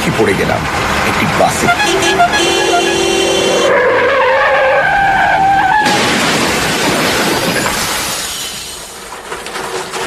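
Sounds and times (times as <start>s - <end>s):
car horn: 1.6s - 3.9s
loud car crash: 5.0s - 10.0s.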